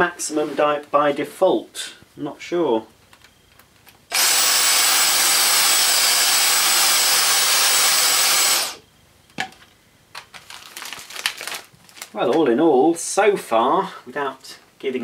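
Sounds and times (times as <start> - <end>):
handheld vacuum motor running: 4.1 - 8.8.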